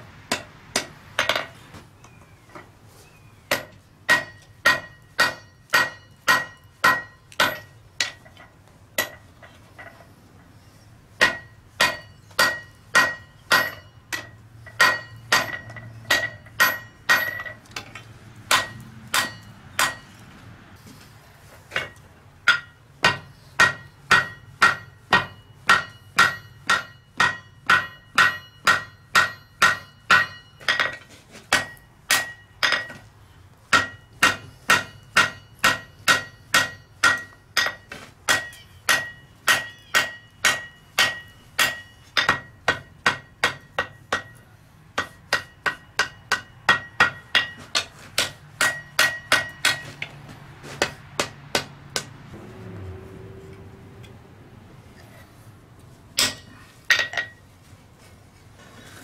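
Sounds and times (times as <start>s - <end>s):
hammer striking metal on anvil: 0.3s - 1.6s, 3.5s - 9.2s, 11.2s - 20.2s, 21.8s - 33.1s, 33.7s - 50.1s, 50.8s - 52.1s, 56.2s - 57.4s.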